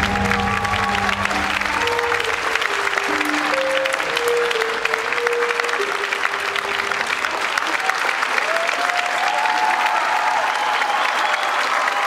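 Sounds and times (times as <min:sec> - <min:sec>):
slow dance music: 0:00.0 - 0:03.4
audience applause: 0:00.0 - 0:12.0.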